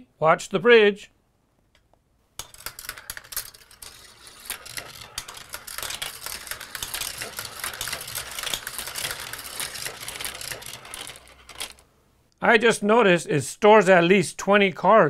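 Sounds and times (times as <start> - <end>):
marbles rattling on plastic track: 2.4 - 11.9.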